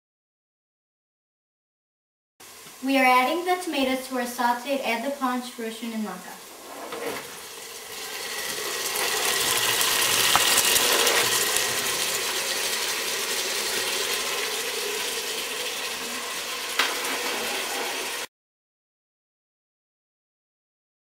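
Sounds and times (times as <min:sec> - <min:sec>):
tomatoes sizzling in hot oil: 0:02.4 - 0:18.3.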